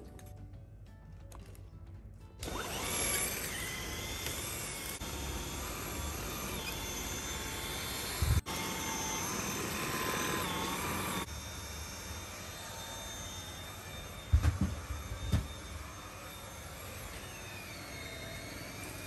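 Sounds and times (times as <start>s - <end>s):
vacuum cleaner motor whine: 2.4s - 19.0s.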